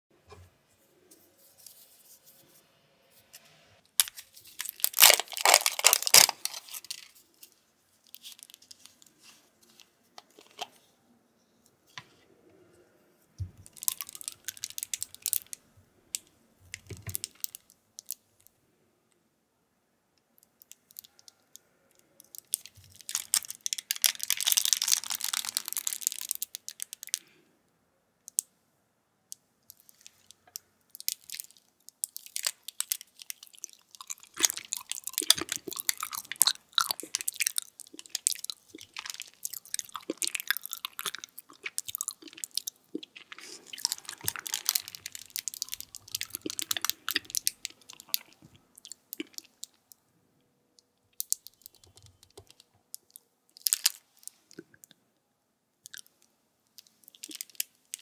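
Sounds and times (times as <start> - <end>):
plastic seal tearing and crinkling: 4.0 - 7.2, 22.5 - 27.2, 32.2 - 48.3.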